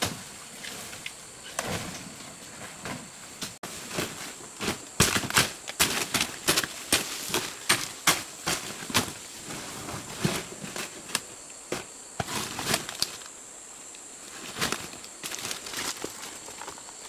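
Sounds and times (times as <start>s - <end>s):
high insect drone: 0.0s - 17.0s
dry leaves crackling and snapping: 4.7s - 9.2s, 12.2s - 13.3s, 14.4s - 17.0s.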